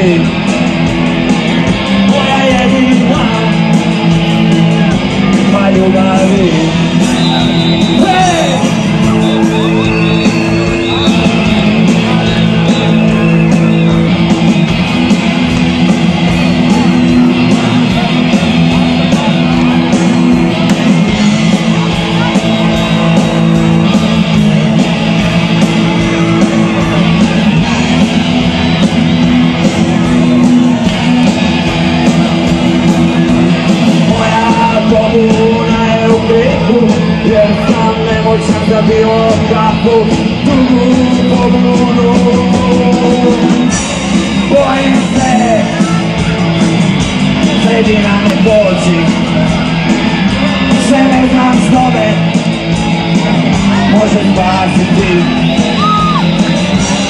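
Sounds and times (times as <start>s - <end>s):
rock band playing live: 0.0s - 57.0s
person singing: 33.9s - 46.4s.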